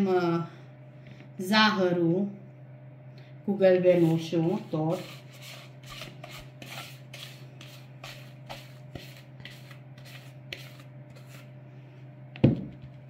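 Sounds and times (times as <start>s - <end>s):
spatula scraping a bowl: 3.9s - 11.6s.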